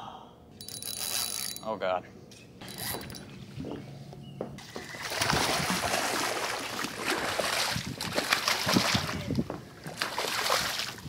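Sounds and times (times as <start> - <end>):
fish splashing at water surface: 4.6 - 9.2.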